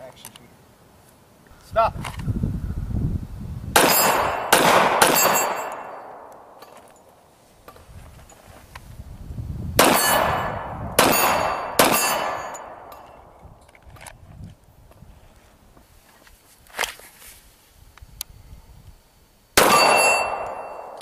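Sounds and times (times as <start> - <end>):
pistol shots with echo: 3.8 - 6.6, 9.8 - 13.0, 19.6 - 21.0.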